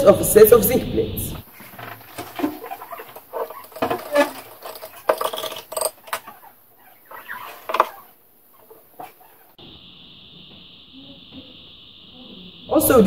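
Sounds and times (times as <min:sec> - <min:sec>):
utensil clinking against glass jar: 0:02.2 - 0:06.4.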